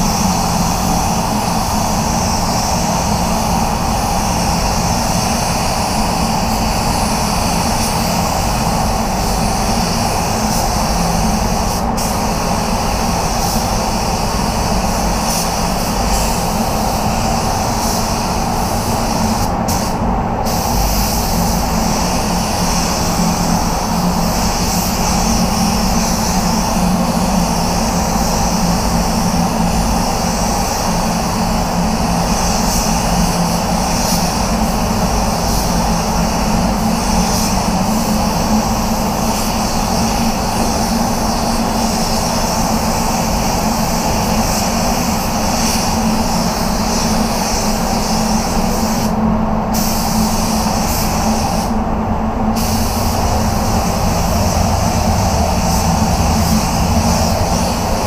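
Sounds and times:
extraction fans droning: 0.0 - 58.0
spray gun hissing: 0.0 - 58.0.

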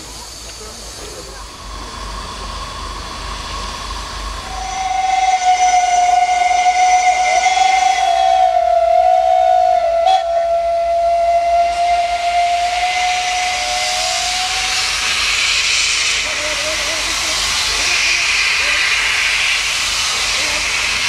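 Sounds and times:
steam hissing: 0.0 - 21.0
steam locomotive whistle: 4.4 - 19.0.

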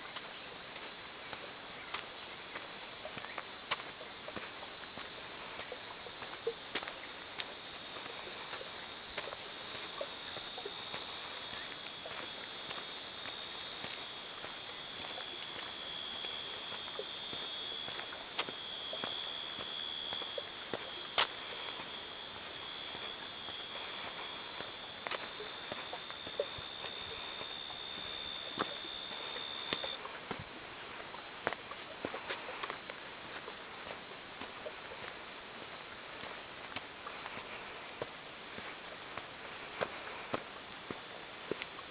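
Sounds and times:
footsteps on dry dirt path: 0.0 - 41.9
insects calling in high tones: 0.0 - 41.9.

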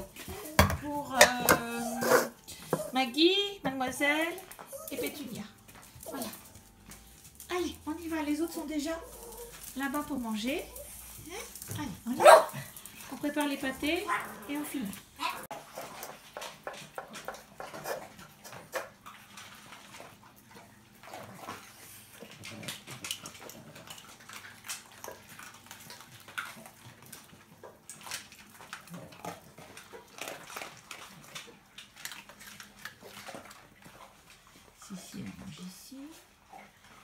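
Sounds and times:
bowls clicking and knocking: 0.0 - 3.0
dogs chewing dry kibble: 0.0 - 37.0.

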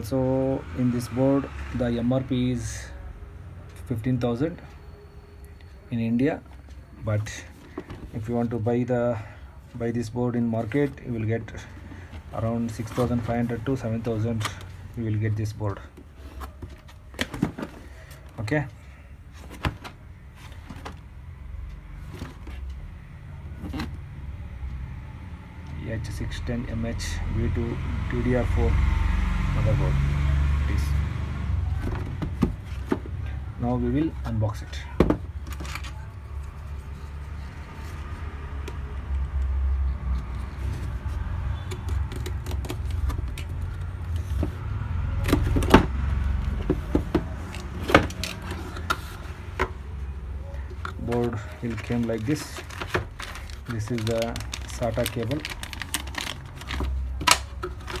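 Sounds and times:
cardboard scraping and rustling: 12.4 - 14.6, 16.0 - 18.2, 40.2 - 49.8, 51.0 - 58.0
box clicks and knocks: 16.6 - 17.9, 31.8 - 33.2, 45.2 - 49.8.

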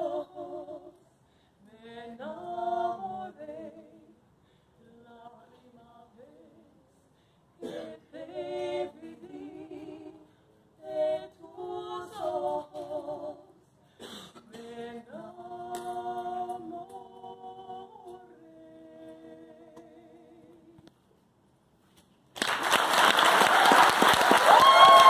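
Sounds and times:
women singing in harmony: 0.0 - 4.2, 4.8 - 6.8, 7.6 - 20.9.

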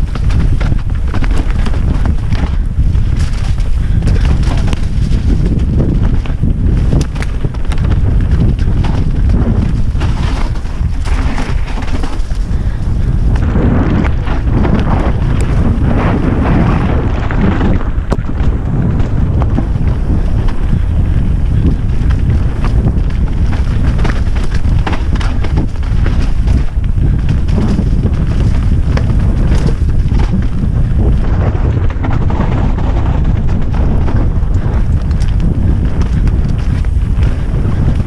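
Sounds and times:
bike clicks and knocks: 0.0 - 38.0
tyre rumble over dirt: 0.0 - 38.0
wind buffeting microphone: 0.0 - 38.0.

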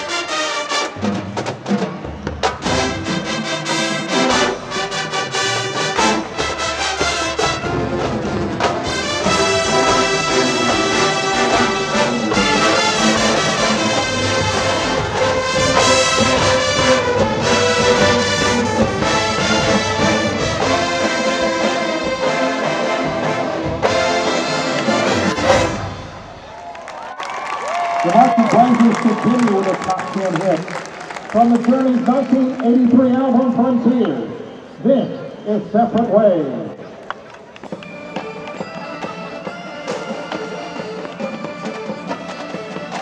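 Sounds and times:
brass section chords: 0.0 - 26.5
drumline: 0.0 - 34.2, 37.4 - 43.0.

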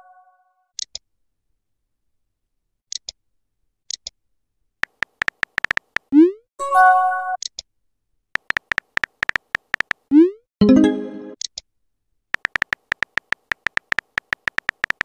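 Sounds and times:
keyboard tap clicks: 4.8 - 6.1, 8.4 - 10.0, 12.4 - 15.0.

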